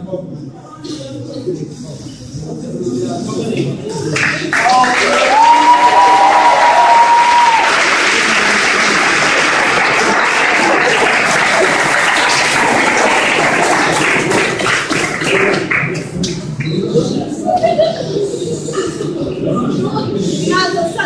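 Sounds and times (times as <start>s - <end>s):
crowd clapping: 4.1s - 16.8s.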